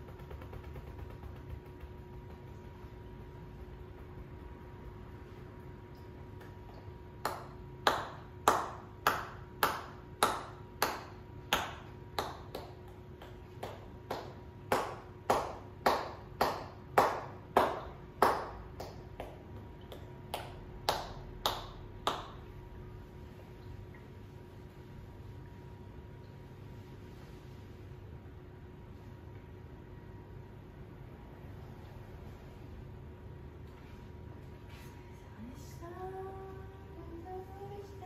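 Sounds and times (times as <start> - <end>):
hands tapping on shoulders: 0.0 - 5.0, 6.4 - 22.4.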